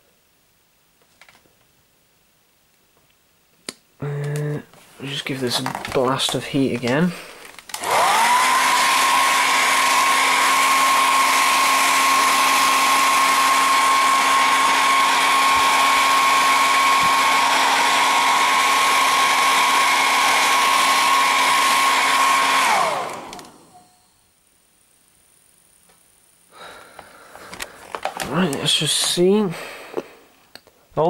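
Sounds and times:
hair dryer running: 6.8 - 24.0.

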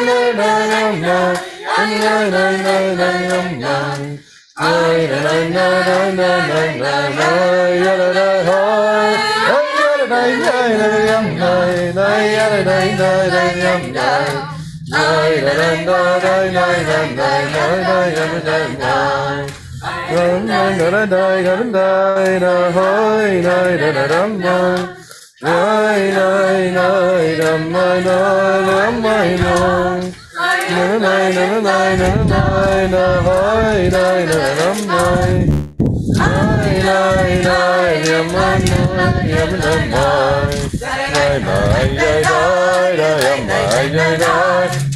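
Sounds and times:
group singing a cappella: 0.0 - 44.9
low rumble: 10.6 - 21.4, 31.6 - 42.6.

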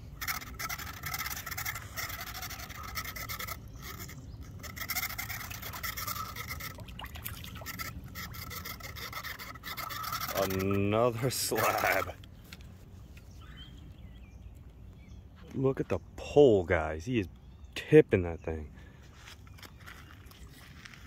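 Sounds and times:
fishing reel whirring and clicking: 0.0 - 12.2.

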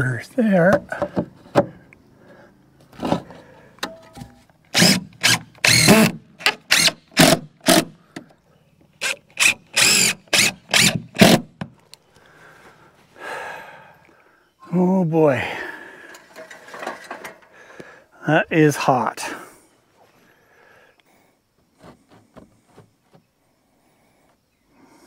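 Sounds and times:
power drill driving screws into wood: 4.7 - 8.0, 9.0 - 11.7.

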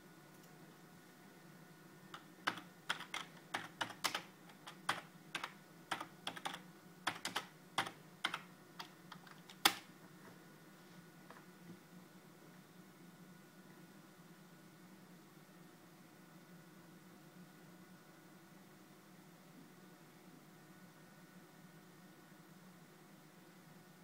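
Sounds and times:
keyboard typing clicks: 2.1 - 9.9.

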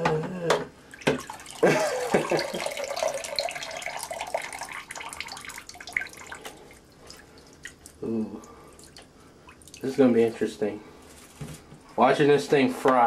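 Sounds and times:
water sloshing and gurgling: 0.9 - 10.0
water running off into basin: 0.9 - 10.1
water dripping: 0.9 - 10.4.

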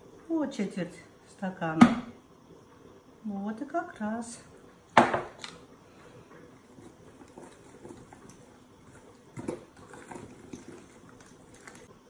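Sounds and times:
batter stirred in glass bowl: 6.7 - 11.9.

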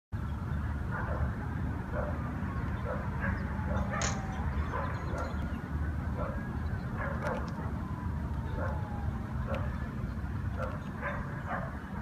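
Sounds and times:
dog barking: 0.9 - 1.3, 1.9 - 2.2, 4.7 - 5.4, 10.6 - 11.8.

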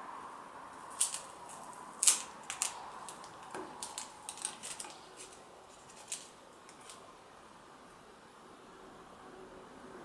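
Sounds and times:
plastic film crinkling: 0.8 - 7.0.

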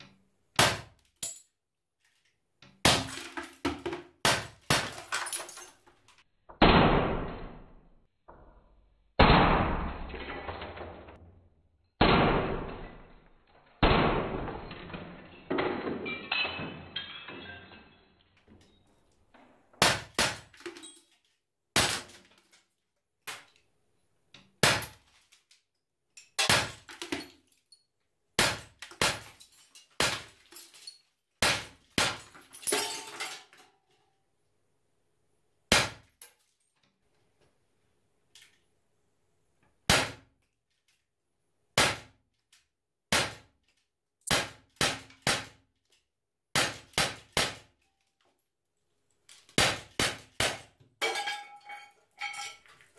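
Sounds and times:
glass bottle shattering: 2.8 - 6.2, 12.1 - 18.8, 20.3 - 22.3, 26.2 - 27.8, 28.5 - 33.8, 50.5 - 52.9
glass pieces tinkling: 16.1 - 18.9, 51.0 - 52.9.

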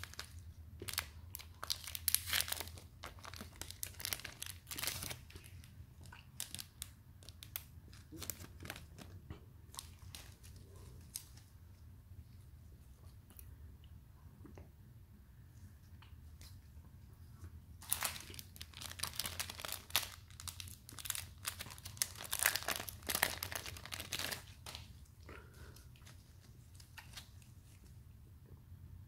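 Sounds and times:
plastic wrapping crinkling: 0.0 - 11.5, 17.8 - 25.0, 25.8 - 27.8.

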